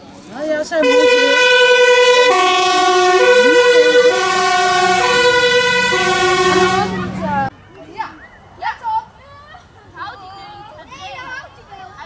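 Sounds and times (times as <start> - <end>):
two-tone fire engine siren: 0.8 - 7.5.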